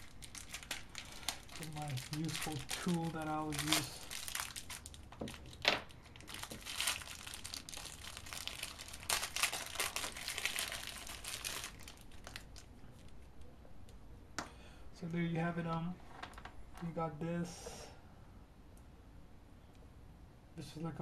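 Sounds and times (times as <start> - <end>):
plastic packaging crinkling: 0.0 - 13.4.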